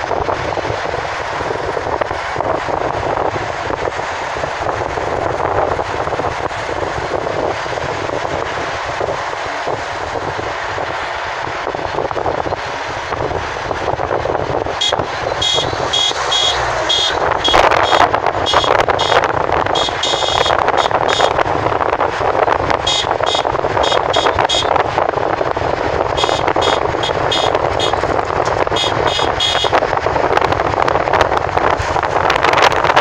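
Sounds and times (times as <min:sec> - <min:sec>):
vehicle road and wind noise: 0:00.0 - 0:33.0
short high beeps: 0:14.8 - 0:19.2.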